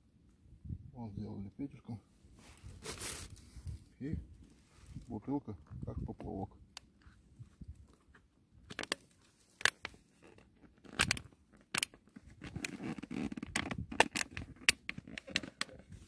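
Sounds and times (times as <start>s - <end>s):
rope rustling: 2.3s - 3.8s.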